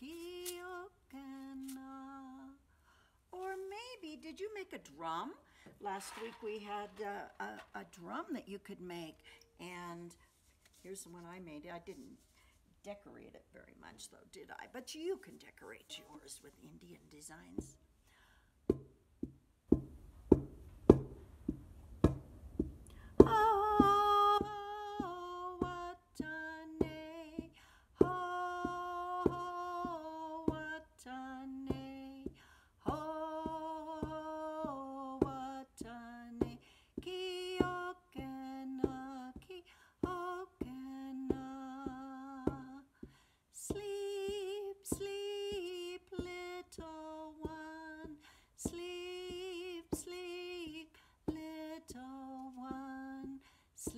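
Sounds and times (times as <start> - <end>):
woman singing a lullaby: 0.0 - 2.6, 3.4 - 10.2, 23.2 - 43.0, 43.6 - 53.9
cardboard drum beat: 18.7 - 42.8, 43.6 - 53.9.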